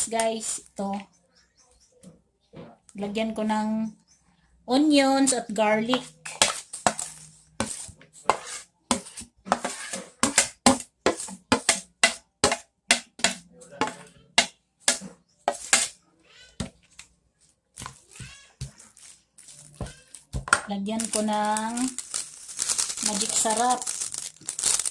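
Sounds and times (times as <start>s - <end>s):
food scraped into plastic bowl: 6.2s - 10.2s.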